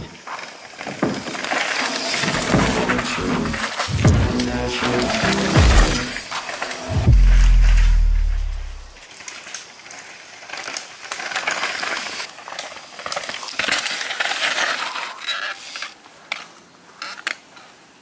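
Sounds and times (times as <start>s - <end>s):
bike tyres skidding on dirt: 0.0s - 2.6s, 9.0s - 17.2s
bike clicks and rattles: 9.1s - 17.8s.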